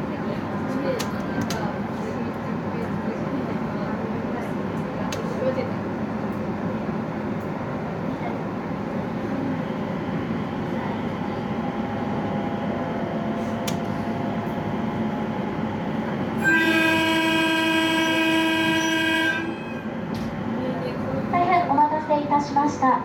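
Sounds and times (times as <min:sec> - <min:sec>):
electric train running: 0:11.1 - 0:20.4
train horn blast: 0:16.4 - 0:20.0.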